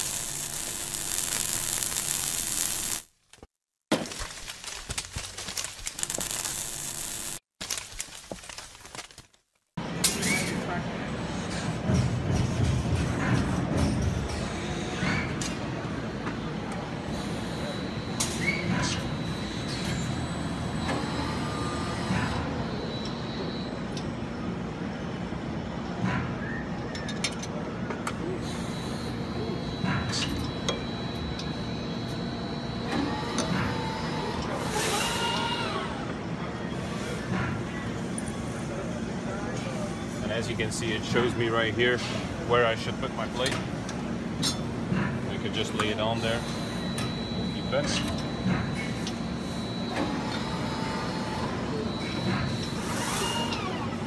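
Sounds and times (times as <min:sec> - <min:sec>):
thin high whine: 0:00.0 - 0:03.1
fire crackling and sizzling: 0:00.0 - 0:03.2, 0:04.1 - 0:09.7.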